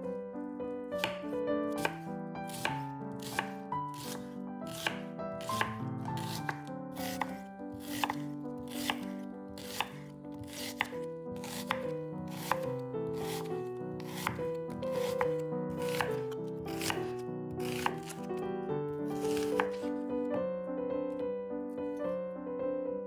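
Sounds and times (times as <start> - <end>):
soft piano music: 0.0 - 23.0
knife cutting on cutting board: 1.0 - 18.3, 19.0 - 20.0.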